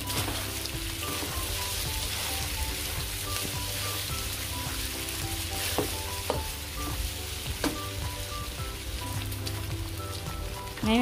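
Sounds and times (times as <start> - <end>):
wooden spatula scraping wok: 0.0 - 8.0
pork sizzling in a wok: 0.0 - 11.0
soft background music: 0.0 - 11.0.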